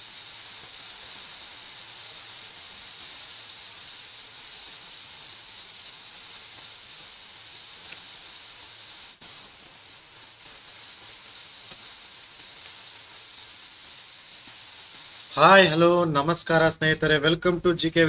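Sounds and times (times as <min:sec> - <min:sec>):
microphone and room hiss: 0:00.0 - 0:18.0.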